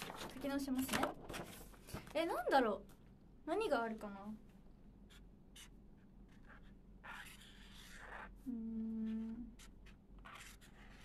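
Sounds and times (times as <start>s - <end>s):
woman humming: 8.4s - 9.6s.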